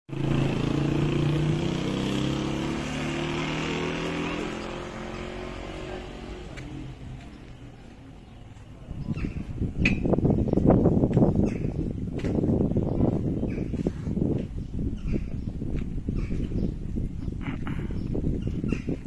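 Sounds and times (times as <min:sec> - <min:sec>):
vehicle engine humming: 0:00.1 - 0:13.6.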